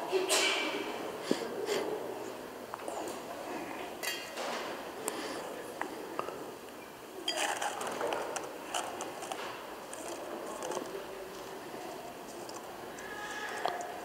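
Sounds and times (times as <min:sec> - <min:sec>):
metal vessels clinking: 0:07.2 - 0:07.9.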